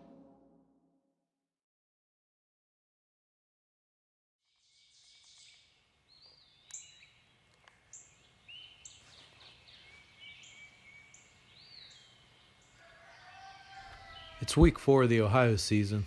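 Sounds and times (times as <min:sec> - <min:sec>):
low steady hiss: 0:04.5 - 0:13.2
songbird chorus: 0:04.5 - 0:16.0.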